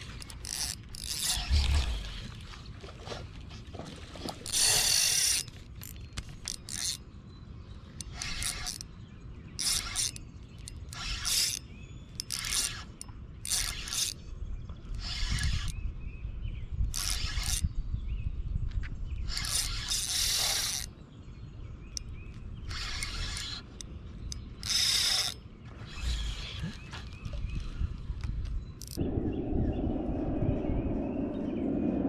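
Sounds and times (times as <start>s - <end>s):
fishing reel gears whirring: 0.0s - 2.2s, 4.4s - 7.0s, 8.0s - 8.9s, 9.6s - 14.2s, 14.9s - 15.8s, 16.9s - 17.6s, 19.3s - 20.9s, 22.0s - 26.8s, 28.8s - 29.0s.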